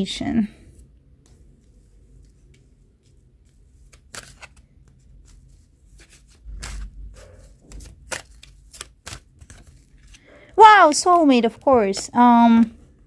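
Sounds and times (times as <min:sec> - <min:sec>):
cards clicking: 0:03.8 - 0:05.0, 0:07.7 - 0:10.2.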